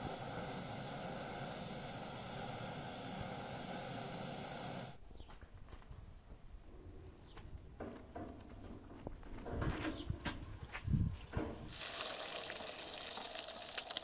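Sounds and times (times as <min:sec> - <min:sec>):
gas burner hiss: 0:00.0 - 0:05.0
outdoor background: 0:00.0 - 0:14.0
water boiling in a pot: 0:11.7 - 0:14.0.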